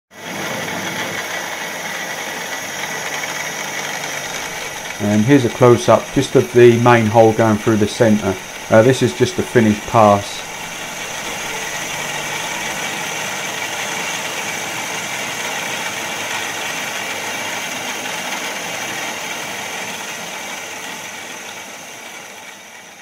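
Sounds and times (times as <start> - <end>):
milling machine running: 0.1 - 23.0
faint high whine: 2.8 - 14.9.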